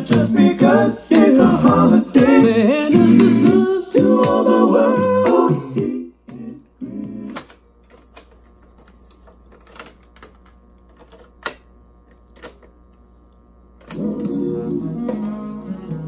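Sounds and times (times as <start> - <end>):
taped music: 0.0 - 8.5, 13.5 - 16.0.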